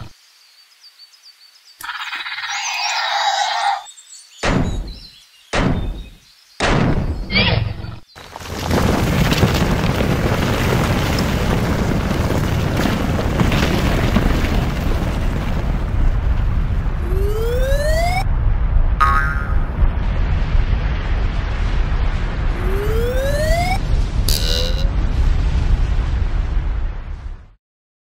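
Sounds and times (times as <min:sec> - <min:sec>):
deep volcanic booms: 0:08.3 - 0:27.6
low volcanic rumble: 0:08.3 - 0:27.6.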